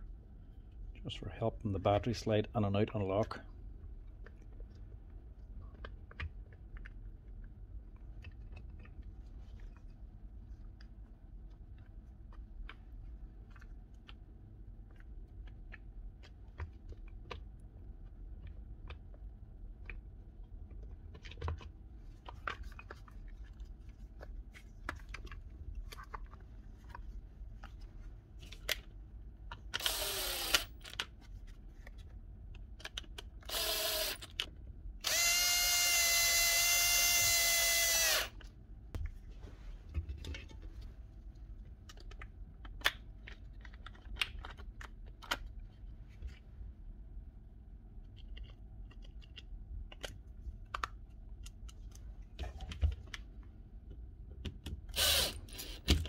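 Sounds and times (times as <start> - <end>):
cordless drill motor: 29.8 - 30.9, 33.4 - 34.4, 35.0 - 38.4, 54.9 - 55.9.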